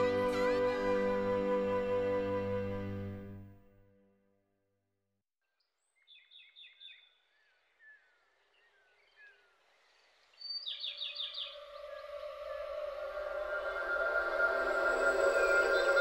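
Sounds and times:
soft music pad: 0.0 - 4.1, 10.8 - 16.0
bird chirping: 5.4 - 16.0
bird gliding whistles: 10.4 - 16.0.

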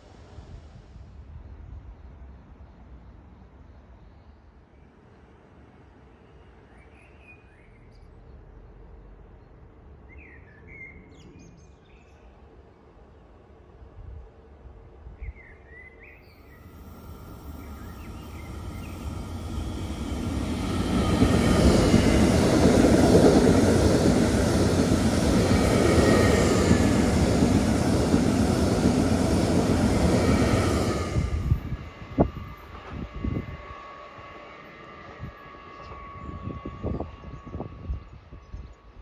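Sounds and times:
electric train running past: 12.4 - 39.0
faint bird chirps: 15.2 - 22.2.

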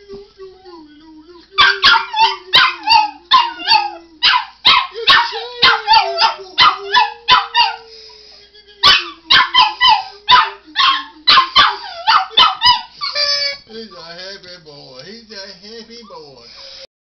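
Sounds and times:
man singing a held note: 0.0 - 4.4, 5.0 - 11.4
small dog yapping: 1.6 - 7.8, 8.8 - 12.9.

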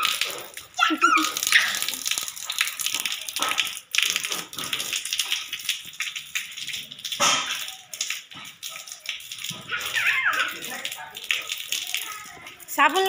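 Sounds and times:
water splashing on concrete: 0.0 - 13.0.

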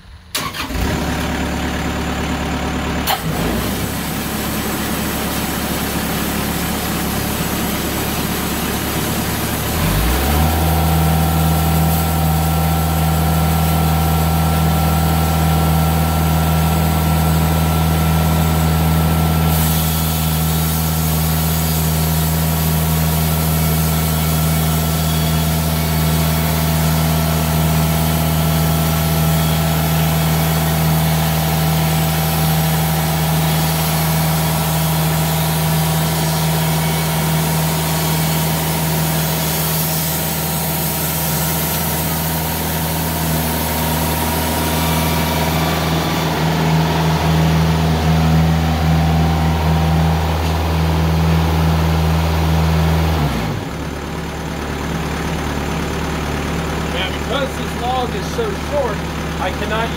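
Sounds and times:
band sawmill engine running: 0.0 - 59.9
blade hissing through log: 19.3 - 49.0.

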